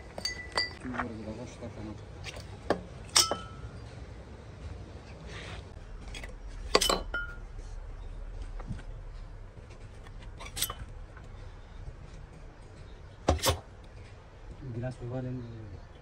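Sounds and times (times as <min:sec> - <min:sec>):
hard objects clinking: 0:00.0 - 0:01.0, 0:02.2 - 0:03.9, 0:05.9 - 0:14.2
low hum: 0:00.0 - 0:16.0.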